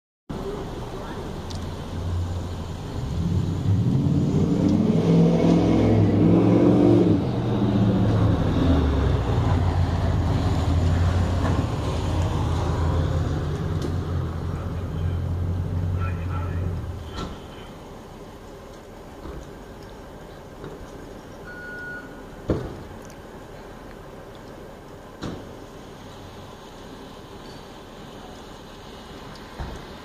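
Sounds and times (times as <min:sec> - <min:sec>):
truck engine revving: 0:01.4 - 0:17.4.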